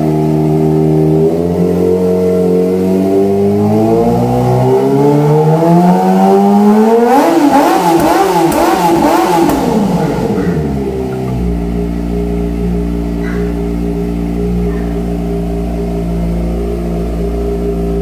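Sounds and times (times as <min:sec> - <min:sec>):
motorcycle engine revving: 0:00.0 - 0:18.0
exhaust cracks: 0:06.8 - 0:18.0.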